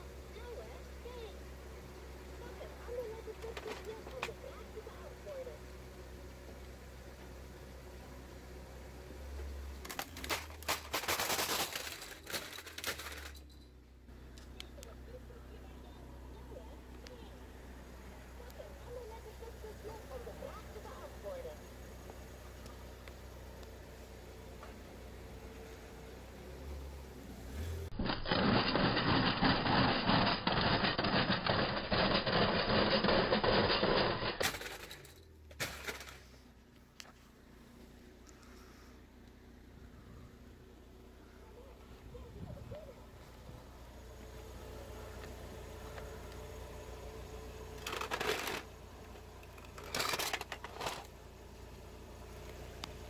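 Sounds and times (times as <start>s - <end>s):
plastic toy cracking under tyre: 9.8s - 13.4s, 28.0s - 34.8s.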